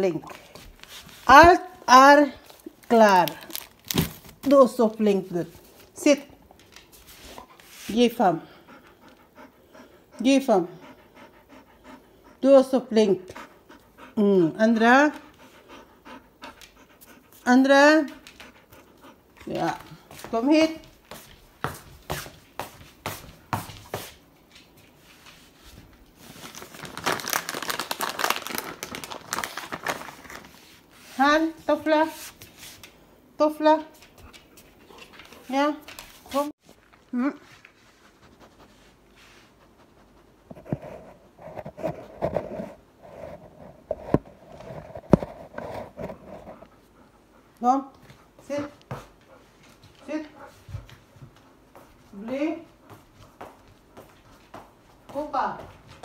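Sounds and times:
dense crinkling rustling: 2.4s - 5.9s, 25.4s - 32.4s
footsteps on wooden floor: 19.8s - 24.9s, 48.0s - 56.0s
scratchy rustling on microphone: 40.5s - 46.7s.

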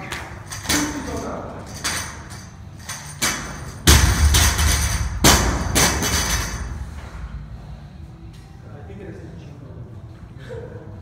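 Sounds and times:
barbell thumping on rubber floor: 3.2s - 6.7s.

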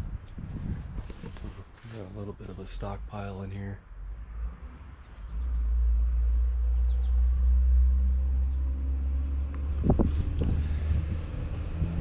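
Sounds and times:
loud low rumble: 4.0s - 12.0s.

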